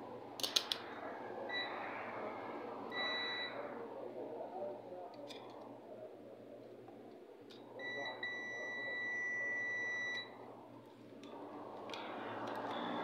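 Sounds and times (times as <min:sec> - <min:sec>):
multimeter continuity beep: 0:01.5 - 0:01.8, 0:02.9 - 0:03.6, 0:07.8 - 0:10.4.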